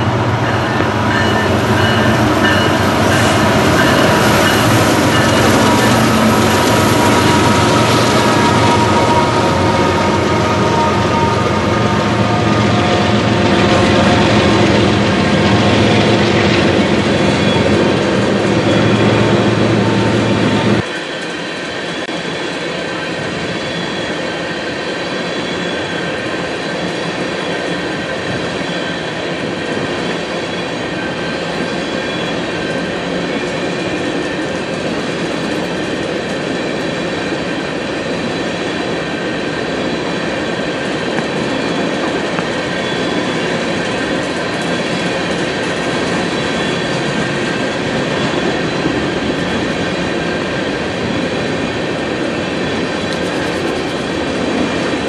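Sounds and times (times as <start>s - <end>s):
high-pitched metallic squeal: 0.0s - 29.3s, 39.7s - 51.8s
train wheels rumbling on rails: 0.0s - 55.0s.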